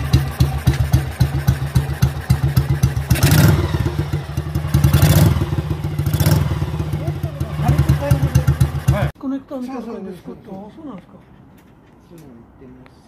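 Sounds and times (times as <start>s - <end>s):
engine revving: 0.0s - 9.1s
motorcycle engine idling: 0.0s - 9.1s.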